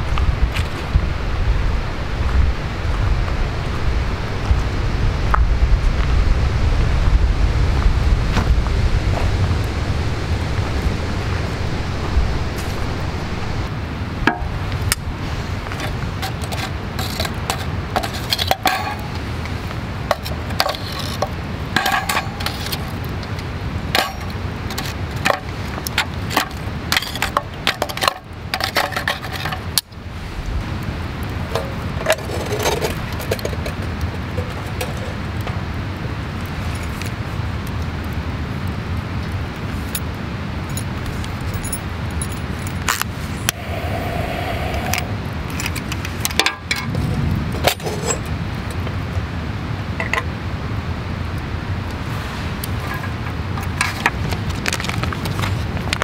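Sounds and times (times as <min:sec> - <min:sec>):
charcoal clinking against tongs: 0:15.8 - 0:19.2, 0:20.1 - 0:23.0, 0:24.0 - 0:29.9.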